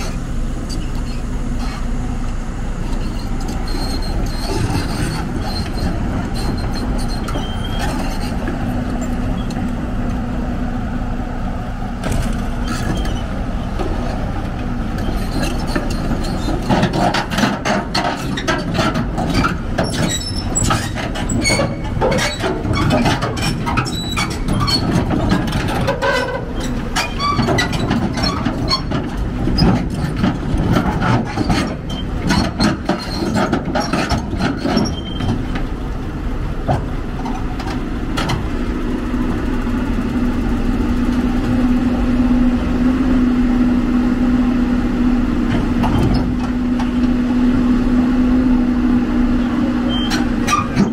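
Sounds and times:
diesel engine running: 0.0 - 50.9
steel tracks clanking on ramps: 15.1 - 35.8, 49.8 - 50.9.

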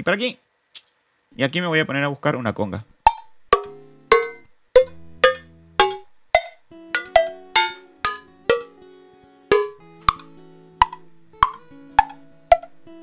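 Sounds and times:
hand percussion hits: 3.0 - 8.8, 9.5 - 12.8.

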